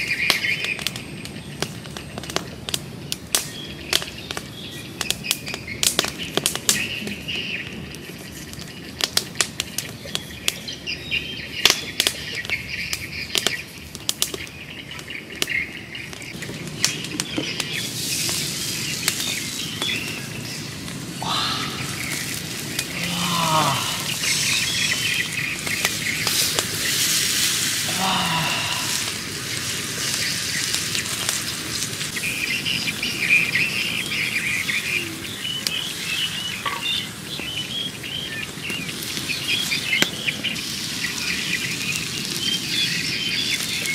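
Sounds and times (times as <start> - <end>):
birds chirping: 0.0 - 43.9
sharp crackling clicks: 11.6 - 21.0
steaks sizzling on hot stone: 16.3 - 43.9.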